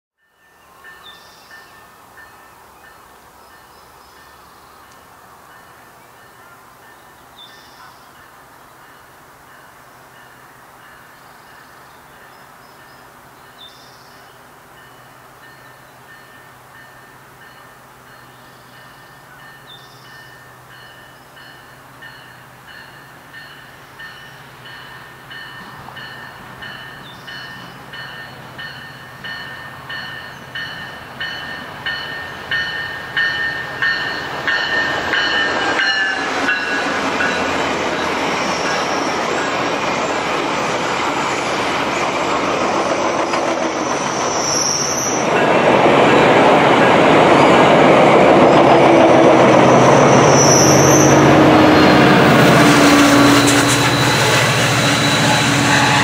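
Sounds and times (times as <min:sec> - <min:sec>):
train bell ringing: 0:00.2 - 0:04.5, 0:05.4 - 0:13.8, 0:14.7 - 0:39.7, 0:44.9 - 0:47.9, 0:49.6 - 0:56.0
rumble of passing train: 0:00.2 - 0:56.0
wheel squeals: 0:49.7 - 0:56.0.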